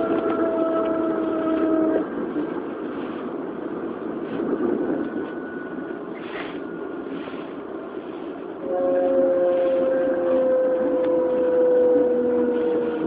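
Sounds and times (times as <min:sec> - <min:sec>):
train rumbling along rails: 0:00.0 - 0:13.0
whining motor tone: 0:08.6 - 0:13.0.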